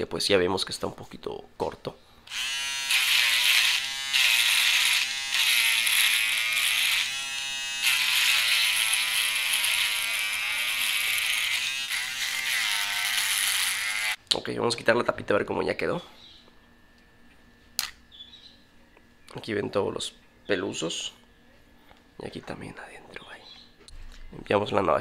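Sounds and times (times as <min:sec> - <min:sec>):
electric shaver buzzing: 0:02.3 - 0:14.2.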